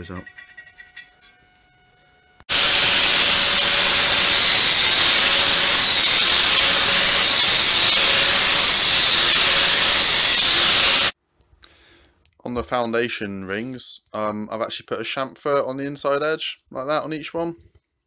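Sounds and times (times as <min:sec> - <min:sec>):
angle grinder sanding metal: 0:02.5 - 0:11.2.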